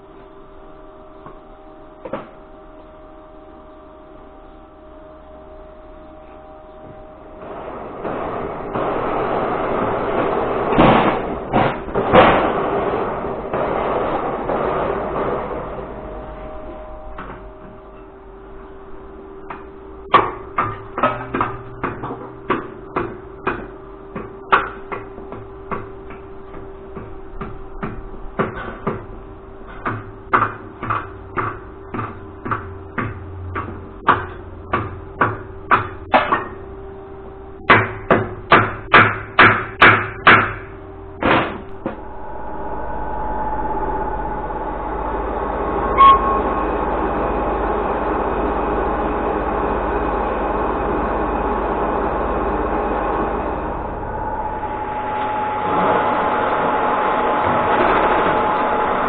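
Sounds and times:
hammer striking hot steel: 19.5s - 36.6s, 37.7s - 46.8s
metal lathe running: 41.7s - 59.0s.

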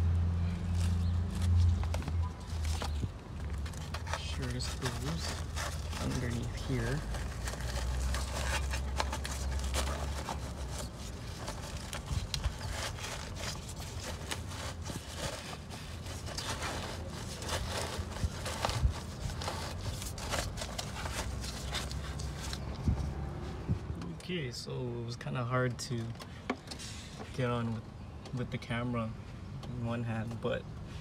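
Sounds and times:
fabric rustling and scraping on metal: 0.4s - 23.9s.

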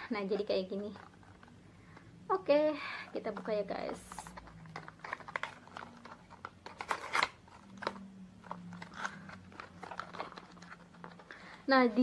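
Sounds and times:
cardboard box rustling and crinkling: 3.1s - 12.0s.

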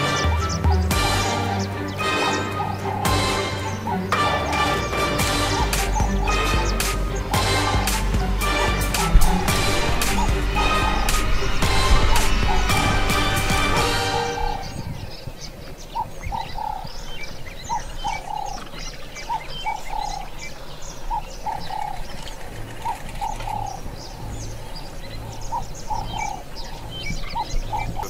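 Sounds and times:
dove cooing: 0.0s - 7.9s, 17.7s - 20.4s, 21.1s - 24.0s
high bird chirps: 0.0s - 28.0s.

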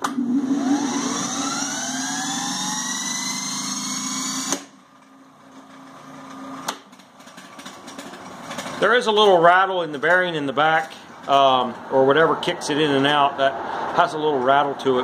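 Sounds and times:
electric motor humming and whining: 0.1s - 4.7s.

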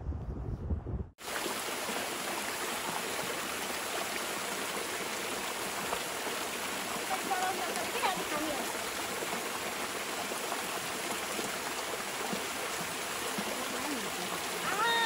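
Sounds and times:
low rumble: 0.0s - 1.2s
waterfall splashing onto stones: 1.2s - 15.0s.

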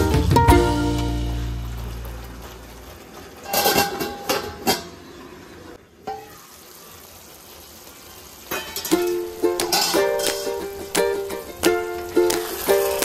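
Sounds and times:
ukulele tune: 0.0s - 2.8s, 8.5s - 13.0s
utensils scraping and clinking on pan: 3.4s - 4.9s, 8.5s - 13.0s
sauce simmering hiss: 6.2s - 13.0s.

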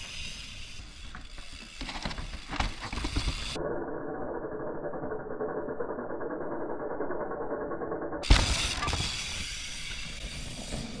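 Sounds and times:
mountain bike rattling on rocks: 0.0s - 3.6s, 8.2s - 11.0s.

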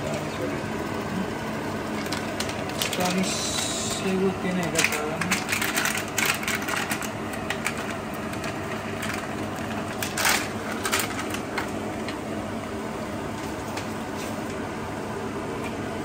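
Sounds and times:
steady low hum: 0.0s - 16.0s
plastic packet crinkling: 1.9s - 3.8s, 4.6s - 11.8s.

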